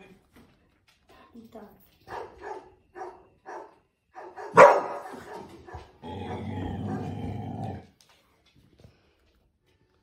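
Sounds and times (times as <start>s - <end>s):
puppy barking: 2.1s - 5.9s.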